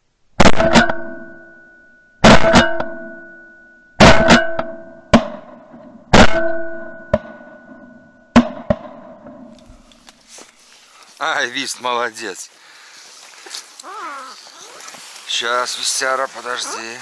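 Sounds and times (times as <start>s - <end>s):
metallic ring: 1.0s - 2.2s, 6.6s - 8.3s.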